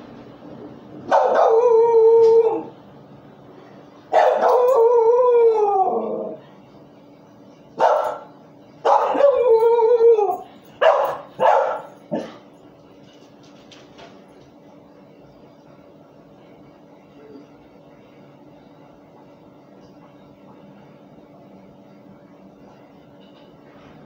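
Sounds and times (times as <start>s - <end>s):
dog barking: 1.1s - 1.6s, 4.1s - 4.6s, 7.8s - 9.3s, 10.8s - 12.4s
dog howling: 1.1s - 2.8s, 4.2s - 6.4s, 8.9s - 10.5s.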